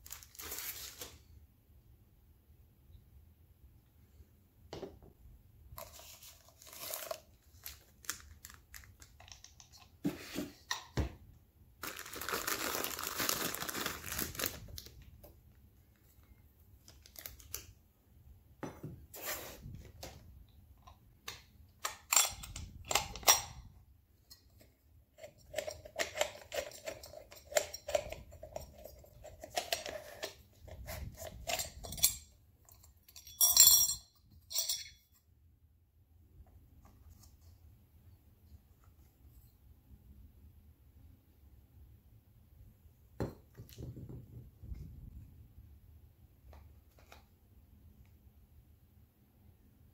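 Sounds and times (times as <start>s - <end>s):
plastic wrap crinkling and tearing: 0.0s - 1.2s, 5.9s - 9.2s, 11.8s - 15.0s
clicks and knocks of parts handled: 9.0s - 11.0s
metal clinks: 32.9s - 35.1s.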